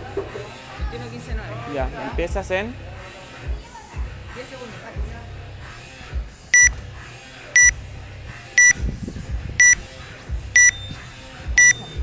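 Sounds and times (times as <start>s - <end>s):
short high timer beeps: 6.6s - 6.8s, 7.6s - 7.8s, 9.6s - 9.8s, 10.6s - 10.9s, 11.6s - 11.9s.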